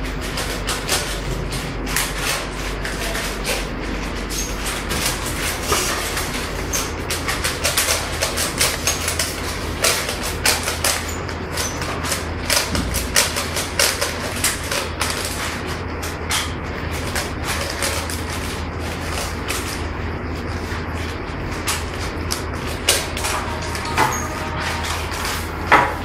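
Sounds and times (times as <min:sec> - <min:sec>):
steady low hum: 0:11.4 - 0:15.2, 0:19.4 - 0:26.0.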